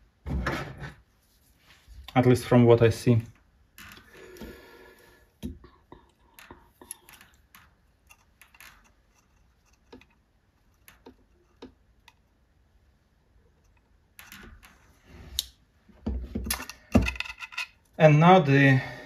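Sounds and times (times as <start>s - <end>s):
hand tools clicking and tapping: 5.4s - 12.3s.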